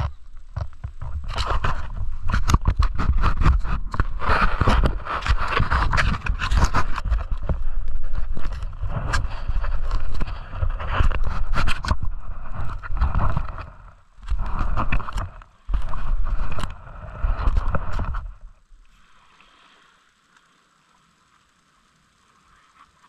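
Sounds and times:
faint hiss: 0:18.4 - 0:23.0.

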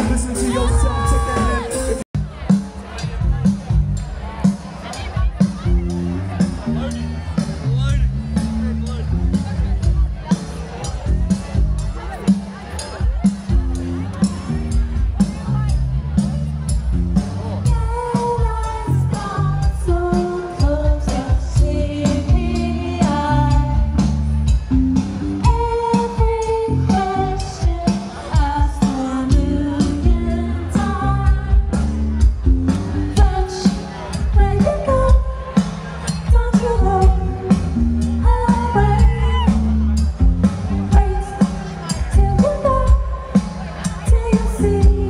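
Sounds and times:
person singing: 0:00.0 - 0:02.1
heavy bass: 0:00.0 - 0:12.3, 0:13.0 - 0:27.8, 0:28.4 - 0:35.6, 0:36.2 - 0:45.0
steady drum beat: 0:00.0 - 0:45.0.

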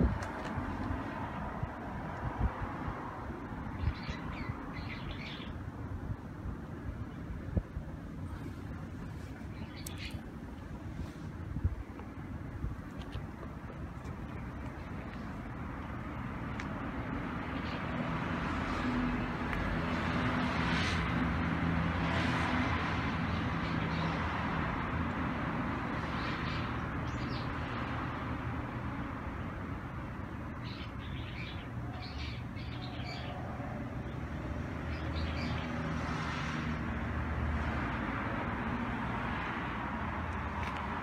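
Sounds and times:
birds chirping: 0:03.7 - 0:05.6, 0:09.4 - 0:10.3, 0:30.6 - 0:34.2.

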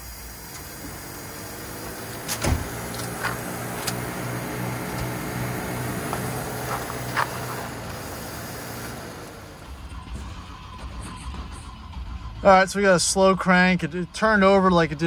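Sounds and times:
engine cranking without firing: 0:00.0 - 0:12.0
sharp clunk: 0:02.3 - 0:02.8.

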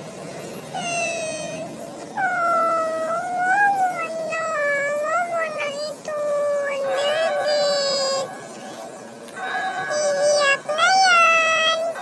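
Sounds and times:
small dog howling: 0:00.8 - 0:08.3.

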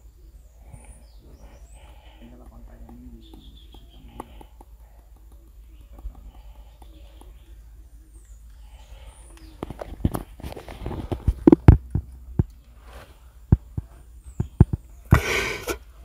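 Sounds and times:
irregular knocks and thumps: 0:02.0 - 0:07.4.

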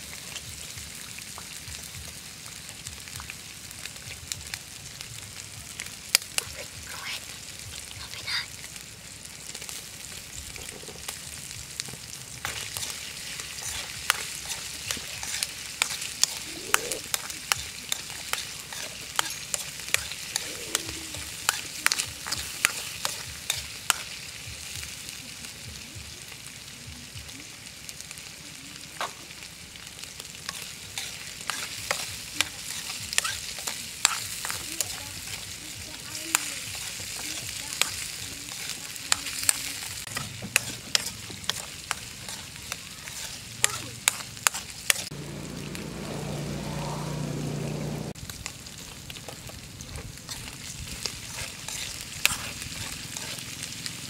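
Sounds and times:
food sizzling in a wok: 0:00.0 - 0:54.0
stirring clicks and scrapes on pan: 0:10.5 - 0:11.2, 0:11.8 - 0:24.2, 0:30.2 - 0:45.1, 0:49.1 - 0:53.8.

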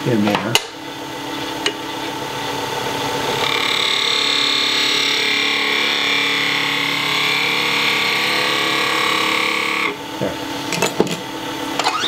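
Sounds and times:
wood lathe running: 0:03.3 - 0:10.0
lathe tool scraping wood: 0:03.4 - 0:10.0.

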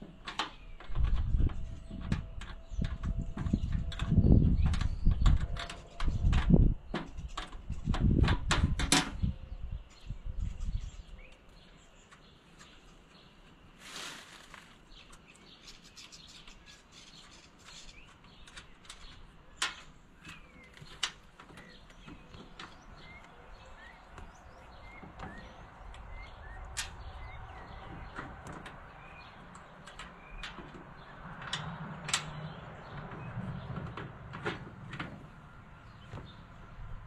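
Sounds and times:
small birds chirping: 0:09.0 - 0:34.2, 0:35.1 - 0:37.0.

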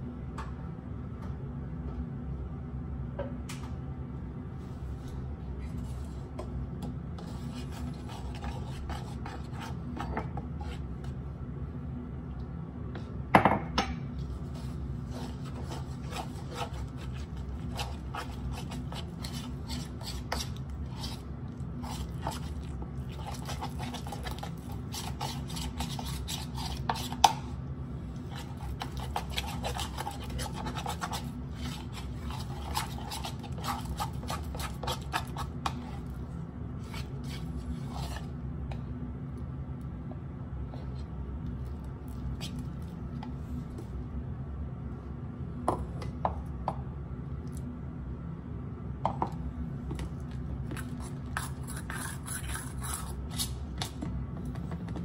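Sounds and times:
utensil stirring paste in bowl: 0:07.1 - 0:11.2, 0:14.2 - 0:38.4, 0:50.7 - 0:55.0.

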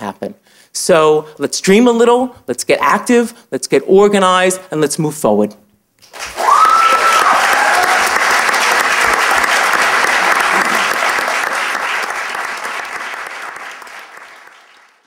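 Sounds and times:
audience applauding: 0:06.0 - 0:15.0
audience cheering: 0:06.1 - 0:14.9.

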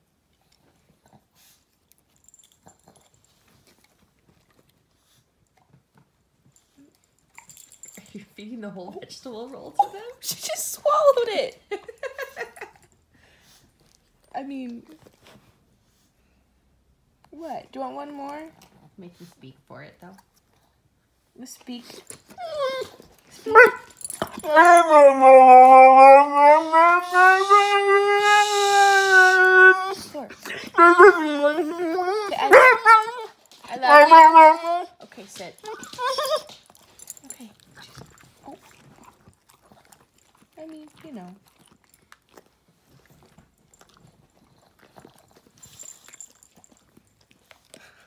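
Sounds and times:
dog yipping: 0:22.4 - 0:30.1, 0:30.8 - 0:34.9, 0:35.6 - 0:36.6
dog howling: 0:23.5 - 0:30.1, 0:30.8 - 0:34.9
dog chewing with wet clicks: 0:35.2 - 0:48.0.

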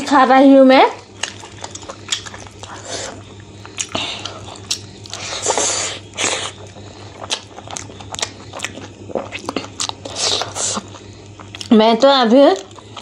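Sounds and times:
steady low hum: 0:00.0 - 0:13.0
wet chewing and lip smacking: 0:01.0 - 0:13.0.

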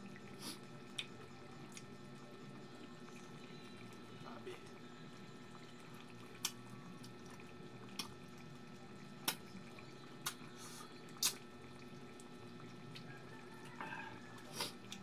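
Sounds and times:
low steady hum: 0:00.0 - 0:15.0
wet mouth smacks while eating: 0:11.2 - 0:11.4.

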